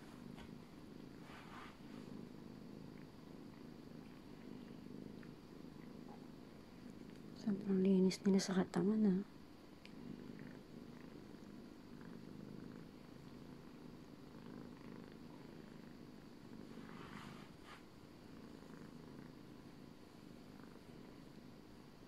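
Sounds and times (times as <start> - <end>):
cat purring: 0.0 - 22.0.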